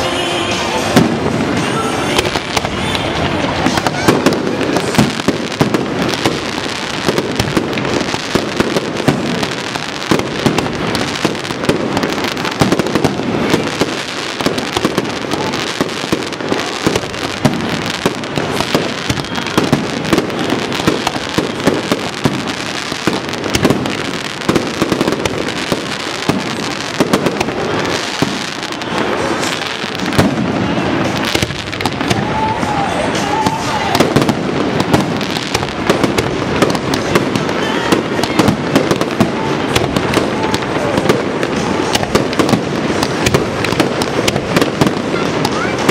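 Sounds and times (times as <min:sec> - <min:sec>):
fireworks bangs and crackles: 0:00.0 - 0:45.9.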